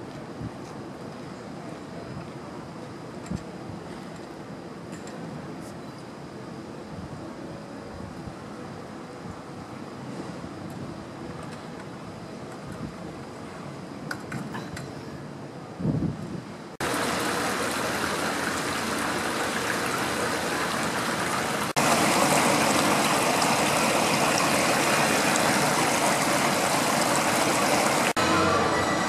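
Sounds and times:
flowing water rushing: 16.8s - 28.4s.

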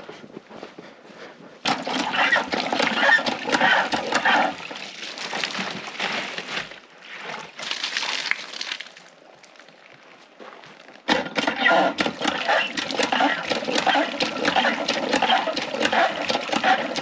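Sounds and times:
hand pump being worked: 1.6s - 4.8s, 11.1s - 17.0s
water gushing into a plastic jug: 1.7s - 9.8s, 11.1s - 17.0s.

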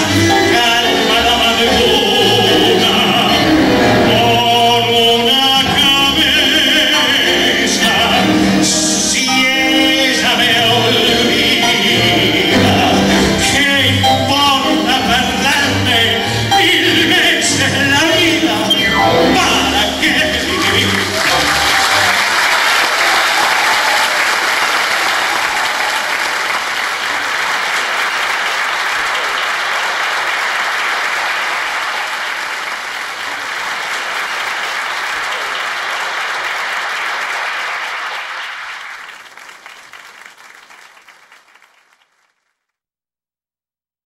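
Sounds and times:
orchestra notes: 0.0s - 22.2s
large audience applauding: 19.4s - 42.7s.

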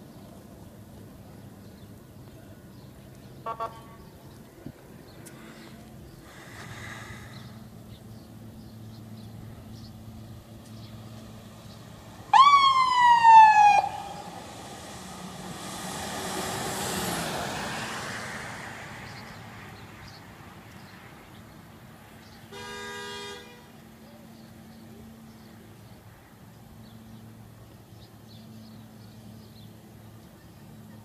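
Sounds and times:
vehicle driving past: 5.4s - 21.1s
siren whoop: 12.3s - 14.5s.

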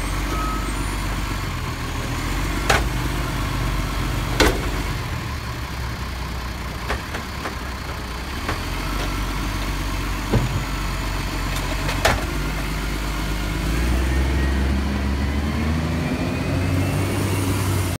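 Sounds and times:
garbage truck diesel engine: 0.0s - 18.0s
bin and arm clanking: 10.2s - 10.8s, 11.5s - 12.4s.

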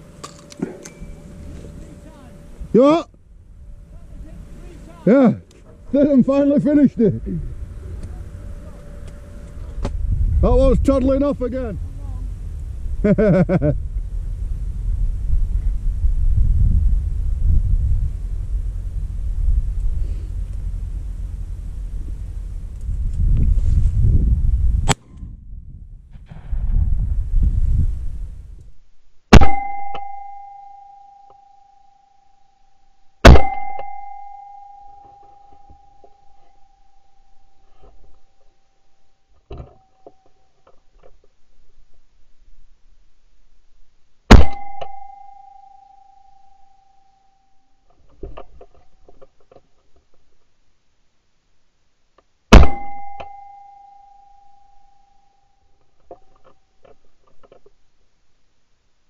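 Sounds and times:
ringing tone: 0.8s - 1.6s, 29.4s - 39.2s, 44.3s - 47.8s, 52.5s - 55.8s
shotgun shot: 29.3s - 29.6s, 33.2s - 33.9s, 44.3s - 45.0s, 52.5s - 53.2s.

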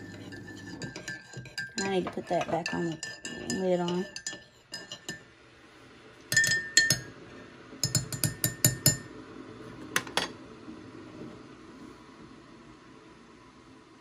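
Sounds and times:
spoon clinking in mug: 0.0s - 5.2s, 6.3s - 7.1s, 7.8s - 9.1s.

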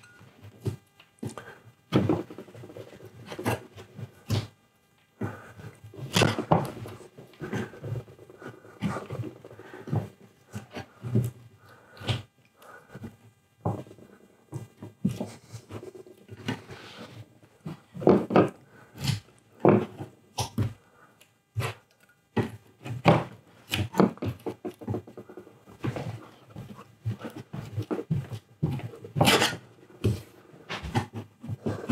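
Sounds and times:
steel scraper scraping and knocking: 29.2s - 29.6s.

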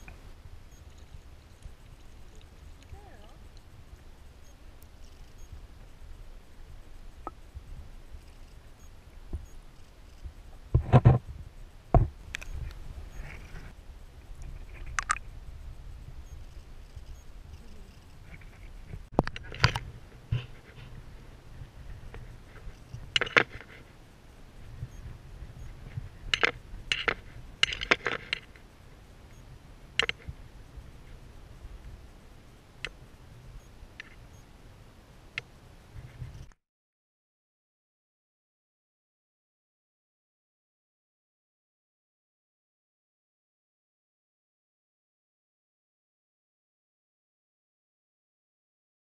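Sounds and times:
low steady rumble: 0.0s - 36.5s.

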